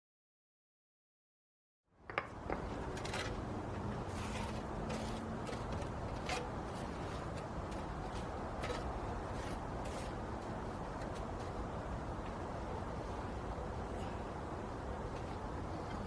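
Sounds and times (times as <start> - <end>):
low outdoor rumble: 2.0 - 16.0
scrapes and clicks on concrete: 2.1 - 11.6.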